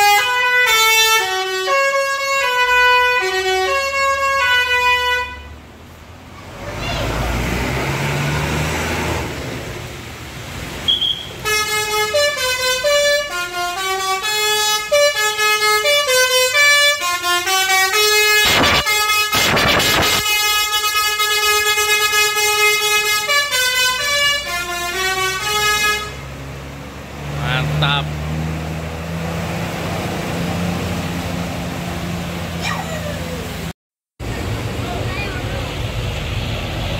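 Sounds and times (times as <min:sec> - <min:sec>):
multi-tone air horn melody: 0:00.0 - 0:05.6, 0:10.9 - 0:26.4
noisy horn blasts: 0:00.0 - 0:05.7, 0:10.8 - 0:26.6, 0:27.2 - 0:28.2.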